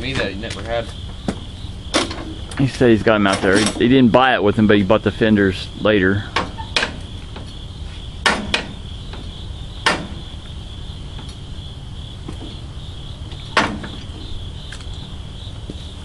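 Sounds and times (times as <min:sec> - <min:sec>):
insects chirring: 0:00.0 - 0:16.0
low steady hum: 0:00.0 - 0:16.0
sharp knocks: 0:00.9 - 0:02.7, 0:06.3 - 0:07.5, 0:08.2 - 0:10.3, 0:13.4 - 0:14.3.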